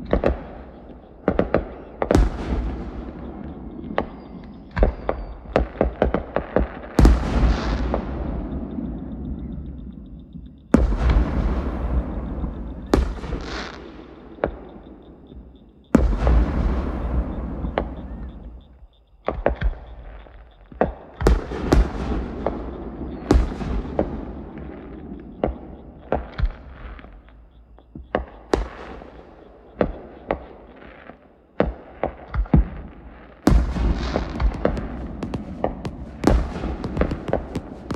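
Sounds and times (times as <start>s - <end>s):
big firework boom: 10.7s - 13.5s, 16.0s - 18.6s, 33.5s - 37.9s
rapid firework cracks and pops: 29.8s - 37.9s
firework shells bursting: 33.5s - 37.9s.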